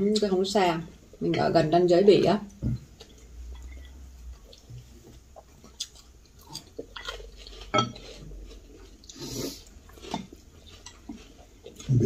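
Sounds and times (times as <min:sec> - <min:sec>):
utensils clinking on ceramic bowls: 0:07.0 - 0:08.2.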